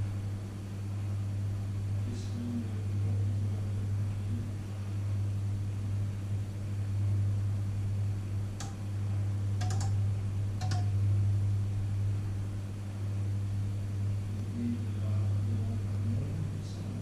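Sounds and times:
microwave oven humming: 0:00.0 - 0:17.0
short clicks: 0:09.6 - 0:10.0, 0:10.6 - 0:10.9.

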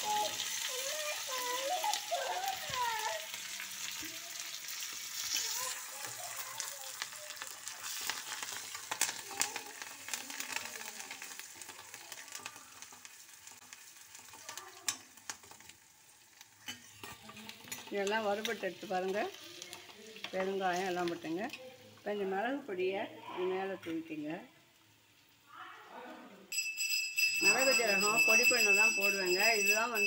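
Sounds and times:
spices sizzling in hot oil: 0:00.0 - 0:25.6, 0:27.4 - 0:30.0
spatula scraping on pan: 0:16.6 - 0:21.6.

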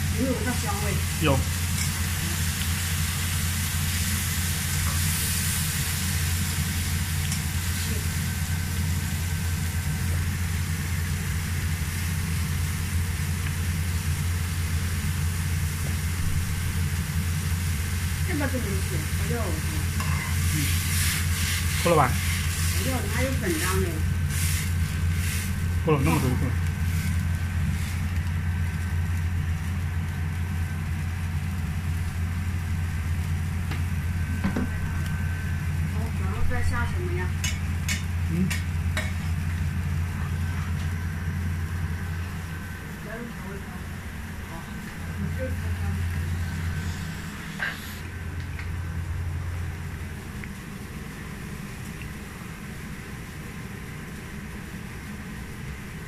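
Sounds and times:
gas stove burner rumbling: 0:00.0 - 0:56.0
kitchen fan humming: 0:00.0 - 0:56.0
faint high whine: 0:32.6 - 0:37.0.

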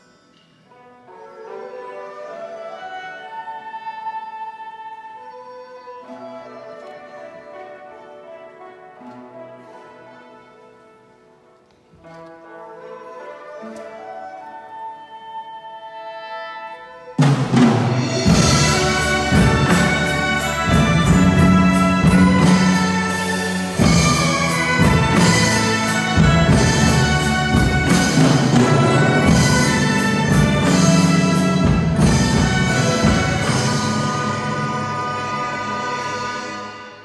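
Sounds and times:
traditional orchestra playing: 0:00.0 - 0:37.0
drum strikes: 0:17.2 - 0:35.0.

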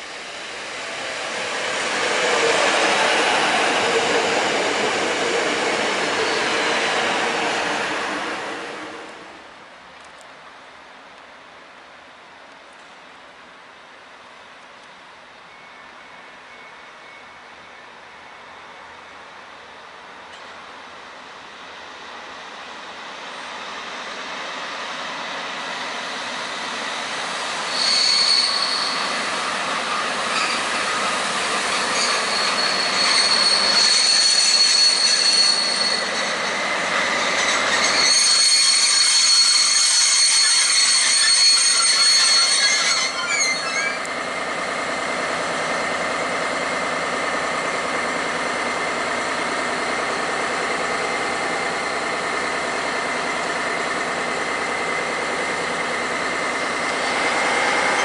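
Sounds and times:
train rolling and braking: 0:00.0 - 0:10.1, 0:14.9 - 0:58.0
brake and wheel squeal: 0:27.5 - 0:44.2
diesel locomotive idling: 0:44.0 - 0:58.0.

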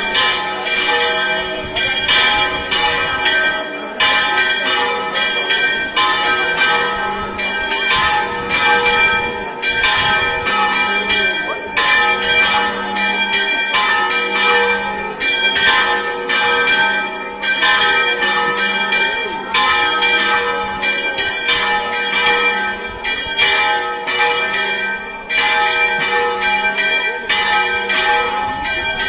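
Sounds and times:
church bells pealing: 0:00.0 - 0:29.0.

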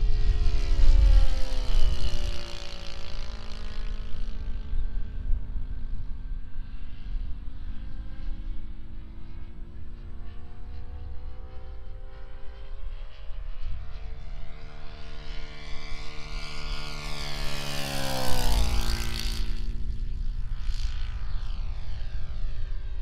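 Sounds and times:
model plane engine and propeller: 0:00.0 - 0:23.0.

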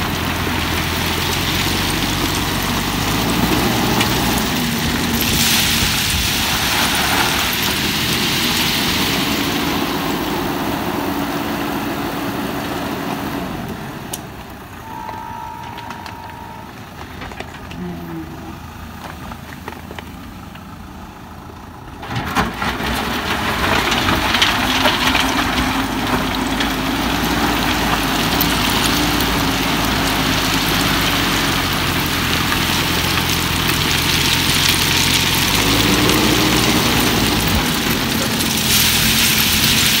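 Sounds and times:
diesel engine running: 0:00.0 - 0:40.0
crushed stone rattling in bucket: 0:22.1 - 0:40.0.

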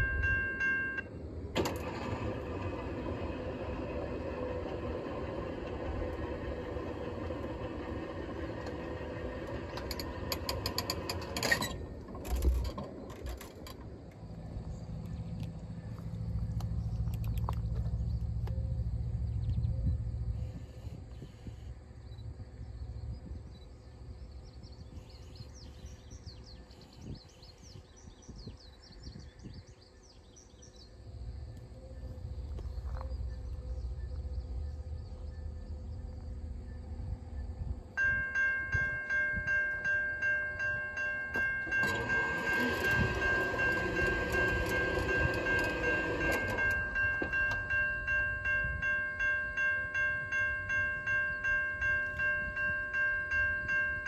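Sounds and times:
crossing bell ringing: 0:00.0 - 0:11.8, 0:37.9 - 0:54.0
low wind rumble: 0:00.0 - 0:54.0.

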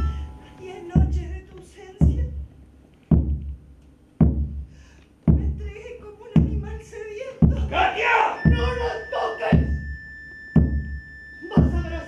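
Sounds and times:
deep drum beats: 0:00.9 - 0:01.4, 0:02.0 - 0:06.8, 0:07.4 - 0:10.0, 0:10.6 - 0:12.0.

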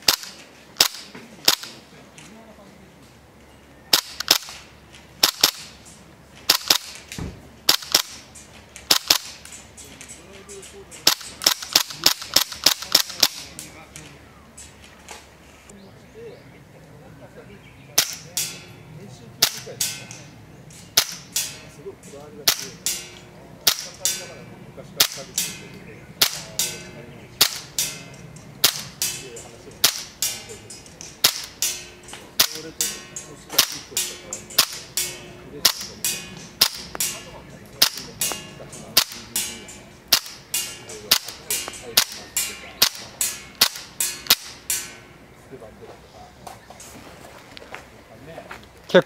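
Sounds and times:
airsoft pistol shots: 0:00.0 - 0:01.8, 0:03.9 - 0:05.7, 0:06.5 - 0:08.3, 0:08.9 - 0:09.4, 0:11.0 - 0:13.6, 0:18.0 - 0:18.6, 0:19.4 - 0:20.2, 0:21.0 - 0:21.6, 0:22.4 - 0:24.3, 0:25.0 - 0:25.6, 0:26.2 - 0:30.6, 0:31.2 - 0:44.9.

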